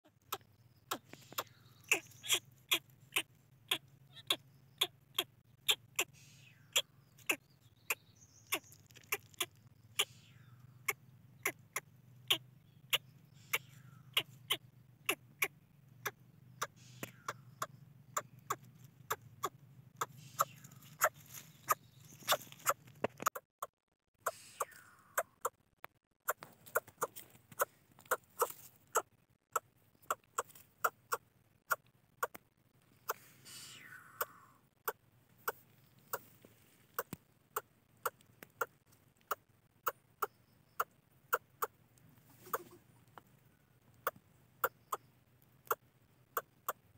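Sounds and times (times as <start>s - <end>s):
nestling bird cheeping: 0.2s - 23.4s, 24.2s - 25.6s, 26.2s - 36.3s.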